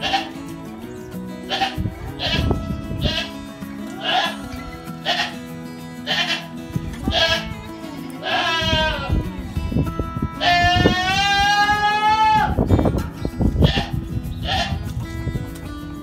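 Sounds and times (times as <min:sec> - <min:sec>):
chickens squawking: 0:00.0 - 0:00.4, 0:01.5 - 0:05.4.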